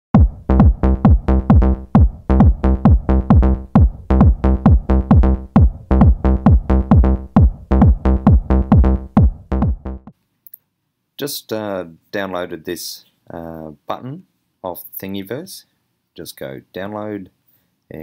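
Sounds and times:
electronic dance music: 0.1 - 10.1.

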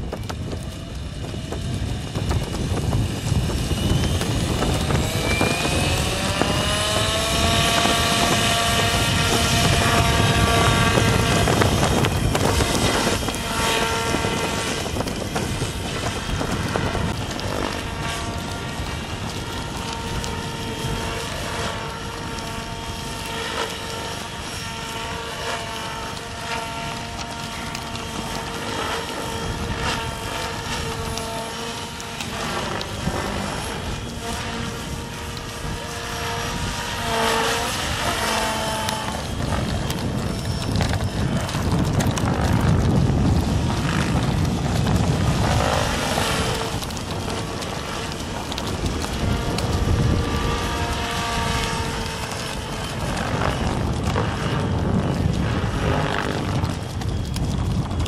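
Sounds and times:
model helicopter rotor whine: 0.0 - 58.0.

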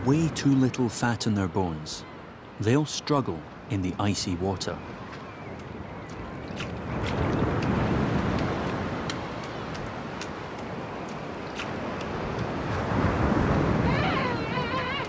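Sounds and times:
surf breaking on beach: 6.6 - 15.0.

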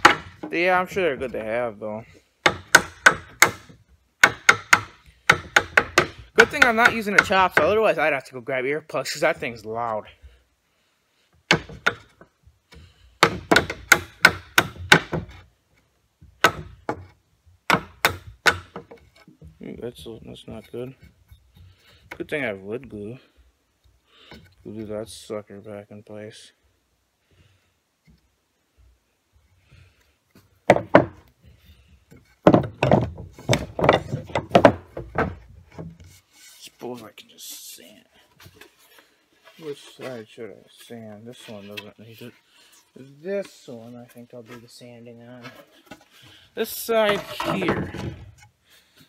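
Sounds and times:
hammer striking wood: 0.0 - 0.5, 2.4 - 7.7, 11.5 - 12.1, 13.2 - 15.3, 16.4 - 17.1, 17.7 - 19.0, 30.6 - 31.2, 32.4 - 35.9
knocking on wooden boards: 0.0 - 1.4, 2.4 - 7.8, 11.5 - 15.4, 16.3 - 19.6, 30.6 - 31.3, 32.1 - 36.0, 47.0 - 48.3.

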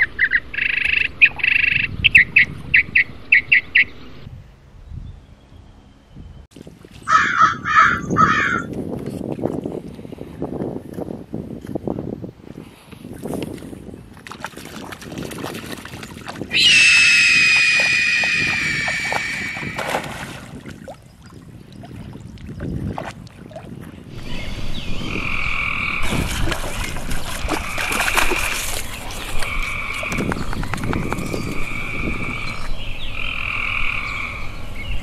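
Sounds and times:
water splashing and dripping: 13.2 - 16.6, 17.4 - 24.1, 26.0 - 32.2
two-pitched calling with clicks: 16.5 - 19.8.

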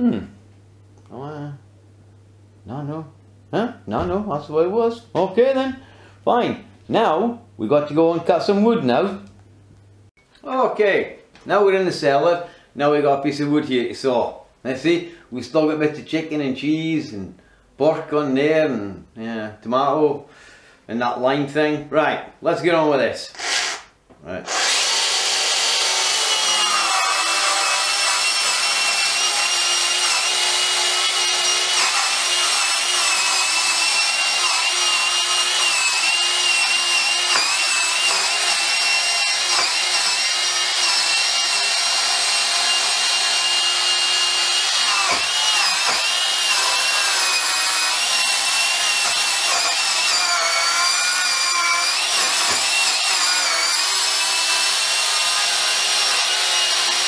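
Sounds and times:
cordless saw cutting wood: 23.4 - 57.0.

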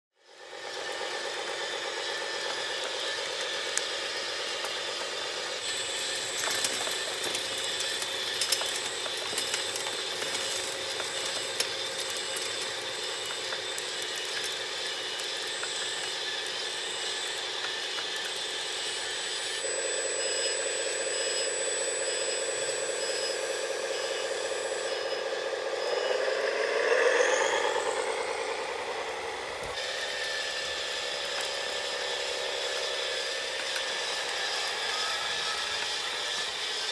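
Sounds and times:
electric motors whining: 0.2 - 36.9
soil and stones rattling: 5.7 - 18.4.

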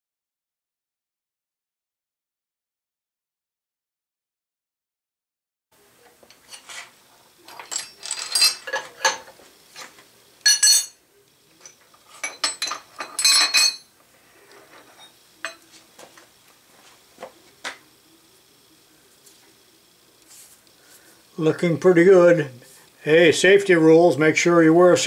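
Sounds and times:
steel tools clinking and clanking: 6.3 - 11.0, 11.6 - 13.9, 14.7 - 15.7.

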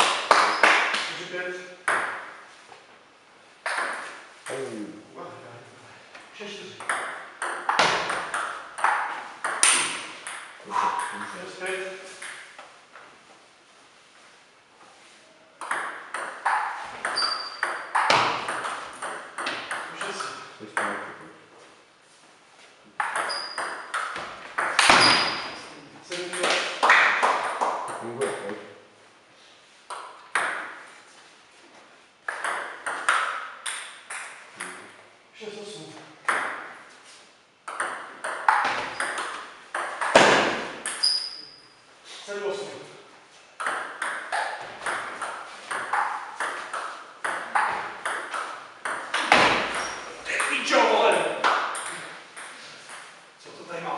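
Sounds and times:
table tennis ball hits: 0.0 - 1.1, 1.8 - 2.4, 3.6 - 4.2, 6.8 - 12.6, 15.6 - 21.0, 23.0 - 28.5, 29.9 - 30.8, 32.2 - 34.8, 36.2 - 36.8, 37.6 - 41.4, 43.6 - 53.2
high squeak: 17.1 - 17.8, 23.2 - 23.8, 24.9 - 25.6, 40.9 - 41.8.

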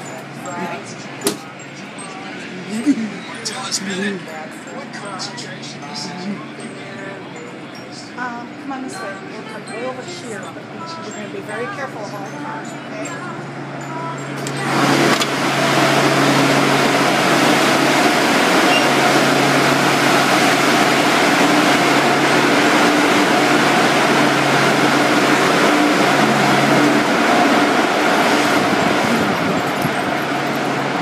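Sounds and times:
car wash rushing noise: 14.4 - 31.0.

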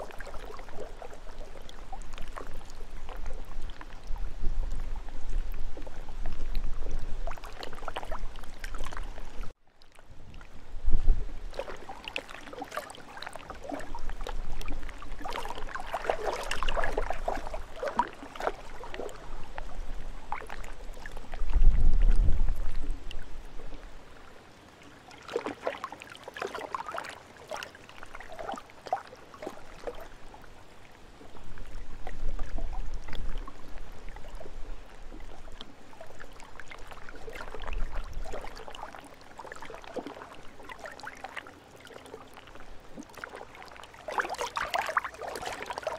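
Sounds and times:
wind rumble on microphone: 0.0 - 12.0, 13.5 - 24.3, 30.1 - 39.0
lake waves lapping and splashing: 0.0 - 45.9.

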